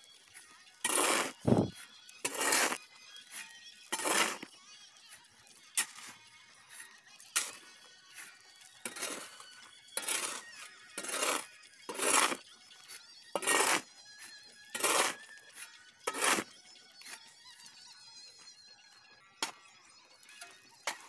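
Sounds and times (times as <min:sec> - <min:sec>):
shovel scraping cement and gravel: 0:00.8 - 0:04.5, 0:05.8 - 0:17.2, 0:20.3 - 0:21.0.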